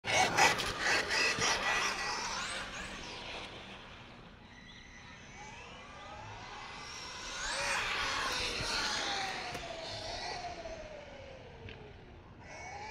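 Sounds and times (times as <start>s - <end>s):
electric motor whine: 5.3s - 11.6s.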